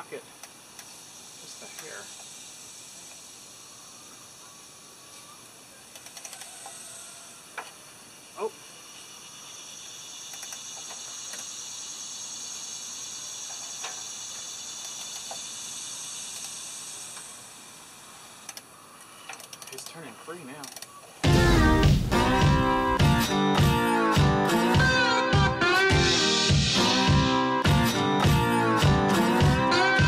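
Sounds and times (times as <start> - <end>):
steady high hiss: 0.0 - 30.0
ratchet clicks: 0.4 - 3.3, 5.9 - 6.8, 10.2 - 11.9, 13.4 - 17.4, 18.4 - 20.0, 20.6 - 20.9.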